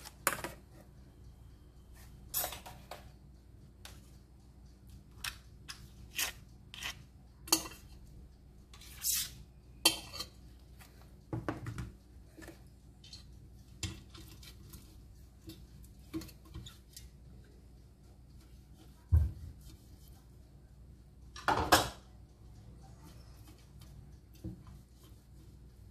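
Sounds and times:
metal cake pan and utensils clinking: 2.0 - 3.1, 5.1 - 8.0, 8.7 - 11.7.

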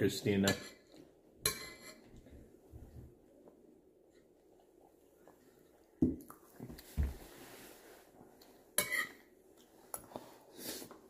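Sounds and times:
dishes and utensils clinking: 0.4 - 2.2, 8.8 - 9.3.

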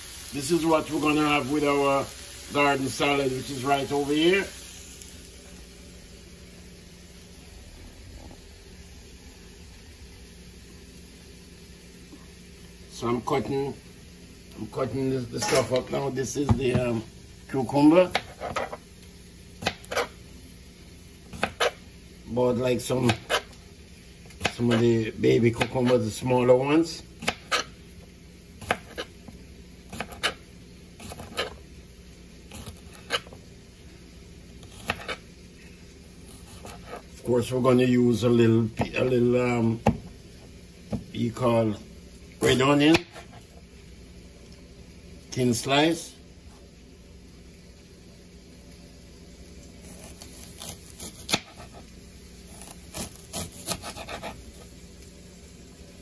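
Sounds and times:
steady low hum: 0.0 - 56.0
knife slicing onion on cutting board: 18.1 - 18.8, 19.6 - 20.2, 21.3 - 21.8, 23.0 - 23.6, 24.3 - 24.9, 25.5 - 26.0, 27.2 - 27.8, 28.6 - 29.2, 29.9 - 30.4, 31.0 - 31.6, 32.5 - 33.4, 34.6 - 35.3, 36.3 - 37.1, 42.4 - 43.5, 49.8 - 54.7.

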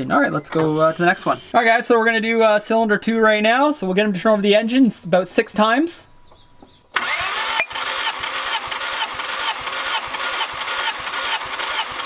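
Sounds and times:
starter motor cranking engine: 6.9 - 12.0.

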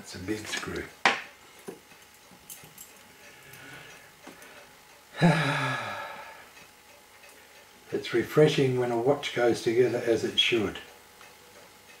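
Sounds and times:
man sighing: 5.2 - 6.5.

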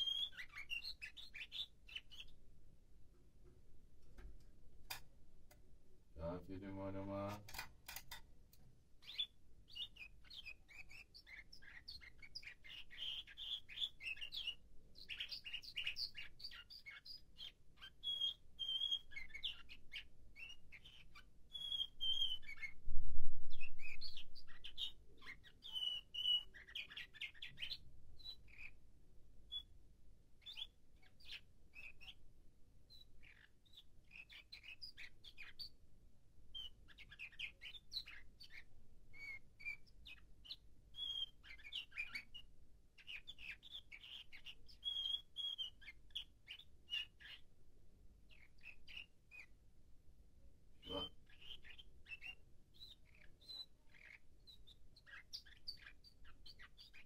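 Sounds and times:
canary singing: 0.0 - 2.4, 9.0 - 22.8, 23.5 - 28.8, 29.5 - 29.8, 30.4 - 32.2, 32.9 - 35.8, 36.5 - 47.5, 48.2 - 49.7, 50.8 - 57.0.

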